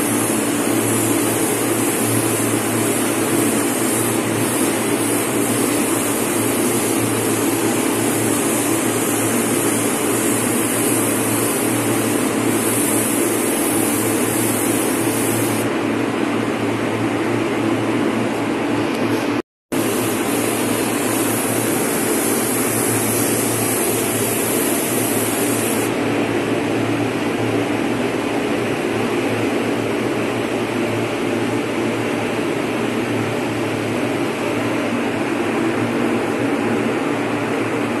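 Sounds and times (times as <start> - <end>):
bright hiss: 19.8 - 25.9.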